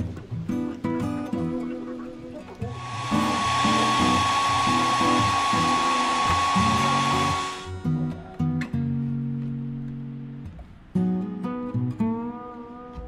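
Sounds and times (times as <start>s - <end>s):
hair dryer blowing with whine: 2.7s - 7.7s.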